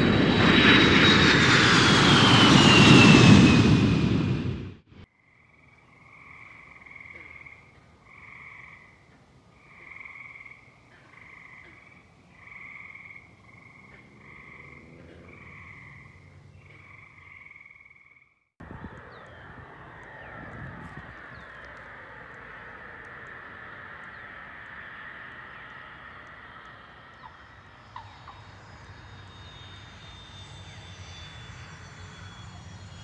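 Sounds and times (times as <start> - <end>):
aircraft engine noise: 0.0 - 5.1, 18.6 - 33.0
frogs trilling: 5.1 - 31.2
bird calls: 18.6 - 28.9.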